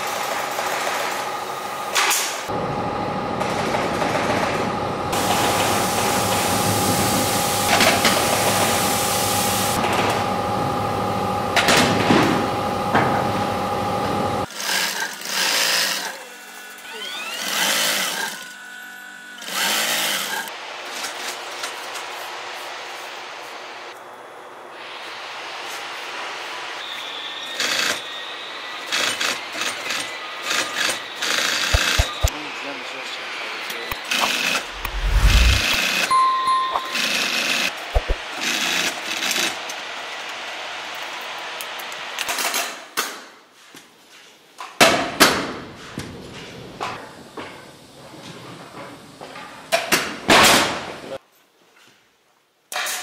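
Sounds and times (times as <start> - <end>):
industrial sewing machine running: 17.0 - 18.5, 19.4 - 20.5, 28.9 - 32.3
sewing machine stitching: 31.4 - 32.3
sharp knocks and thumps: 31.8 - 32.3.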